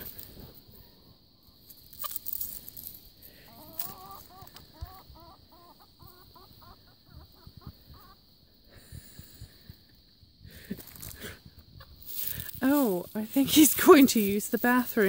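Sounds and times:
chickens clucking: 3.5s - 8.6s, 10.8s - 12.4s.

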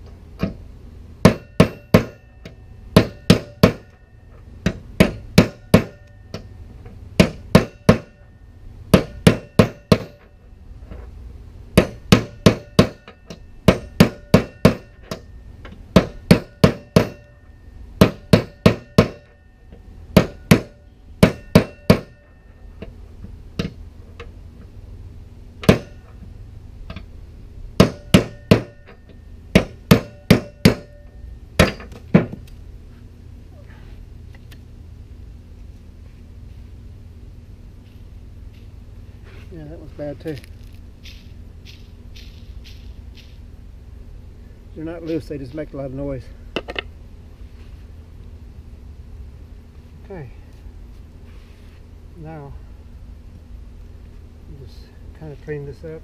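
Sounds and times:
hammer blows on steel ringing: 11.8s - 22.7s.

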